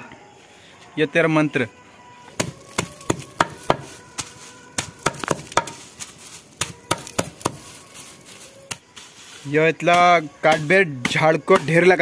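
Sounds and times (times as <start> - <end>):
blade chopping grass on wooden log: 2.4 - 7.8, 8.7 - 12.0.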